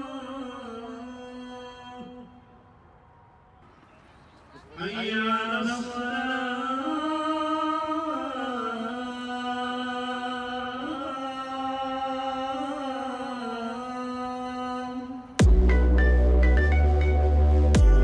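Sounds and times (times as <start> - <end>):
person chanting in long notes: 0.0 - 2.7, 4.9 - 15.4.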